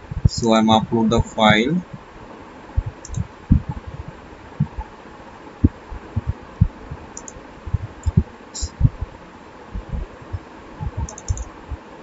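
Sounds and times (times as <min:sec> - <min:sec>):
faint steady hiss: 0:00.0 - 0:12.0
computer mouse clicking and thumping: 0:02.8 - 0:03.8, 0:10.8 - 0:11.5.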